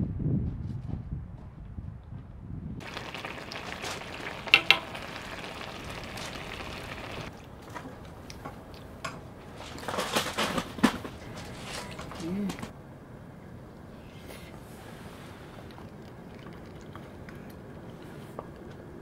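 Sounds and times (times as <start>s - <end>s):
stew sizzling and bubbling: 2.8s - 9.6s
utensil clicks against pan: 4.5s - 4.9s.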